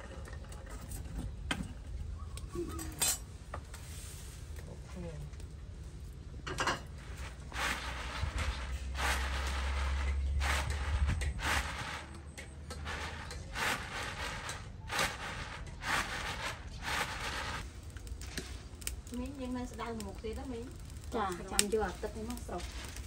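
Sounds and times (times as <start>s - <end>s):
rice swishing in winnowing tray: 7.0s - 17.6s.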